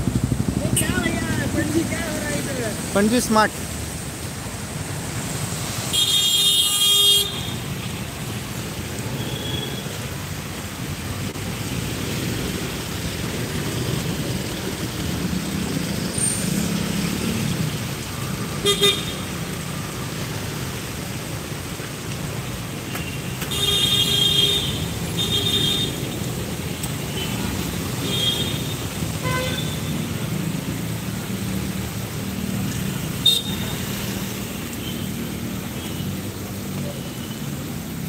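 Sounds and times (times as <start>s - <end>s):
traffic rumble of engines and tyres: 0.0s - 38.0s
car horns tooting: 28.1s - 29.9s.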